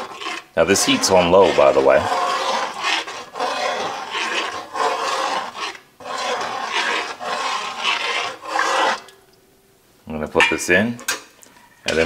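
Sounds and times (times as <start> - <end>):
metal spoon scraping a metal pot: 0.0 - 9.2.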